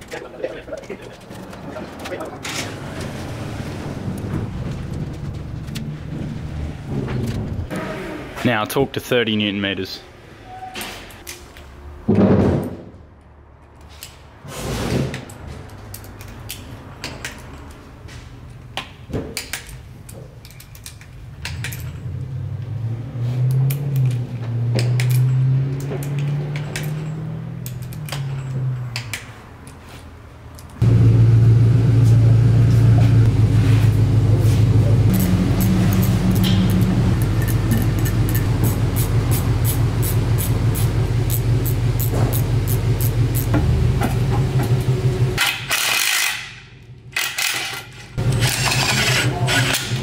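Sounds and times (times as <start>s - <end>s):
loud low drone: 30.8s - 45.4s
torque wrench clicking: 35.2s - 43.6s.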